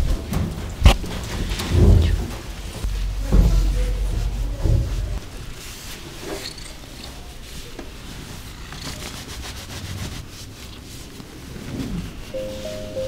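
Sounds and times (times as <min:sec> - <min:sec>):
faint low hum: 0:00.0 - 0:09.0
towel rubbing wet fur: 0:01.0 - 0:13.0.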